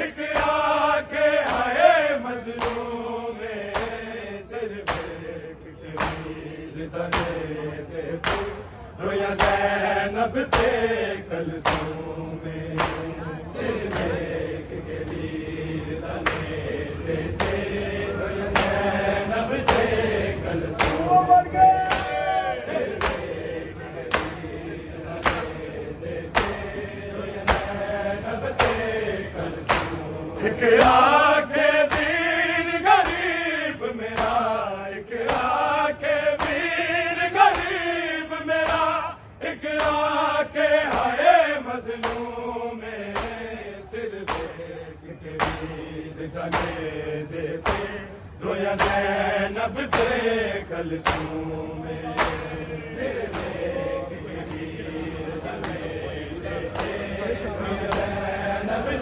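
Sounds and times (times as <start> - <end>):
men chanting a lament: 0.0 - 59.0
chest-beating slaps: 0.2 - 0.8, 1.4 - 1.8, 2.4 - 4.1, 4.8 - 7.5, 8.2 - 8.7, 9.3 - 9.8, 10.4 - 10.8, 11.5 - 12.1, 12.7 - 13.2, 13.8 - 15.2, 18.5 - 18.9, 20.7 - 21.2, 22.8 - 27.8, 28.5 - 28.9, 29.5 - 30.2, 31.8 - 32.3, 33.0 - 33.4, 34.1 - 34.6, 35.2 - 35.8, 36.4 - 36.8, 37.4 - 37.8, 38.6 - 39.0, 40.8 - 41.2, 41.8 - 42.4, 43.0 - 43.6, 44.2 - 44.7, 45.4 - 45.8, 46.4 - 47.0, 47.6 - 48.0, 48.7 - 49.1, 51.0 - 52.6, 53.2 - 53.7, 56.7 - 57.1, 57.8 - 58.2.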